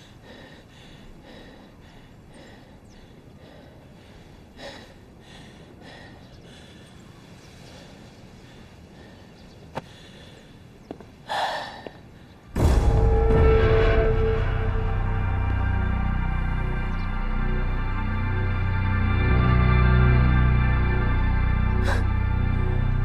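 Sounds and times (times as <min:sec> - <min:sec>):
man breathing tensely: 0:00.0 - 0:12.6, 0:20.1 - 0:23.0.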